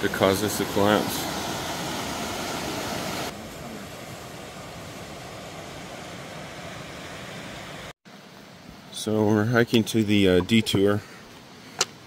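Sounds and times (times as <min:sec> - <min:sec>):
river rushing: 0:00.0 - 0:07.9.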